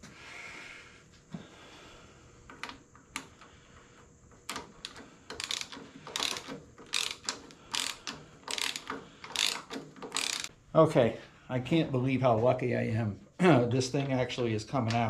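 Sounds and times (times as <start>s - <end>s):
ratchet wrench clicking: 4.5s - 10.5s.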